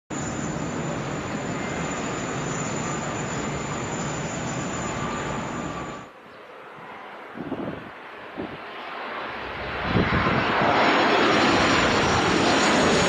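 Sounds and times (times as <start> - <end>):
high engine whine: 0.1 - 6.1
jet engines roaring: 0.1 - 13.0.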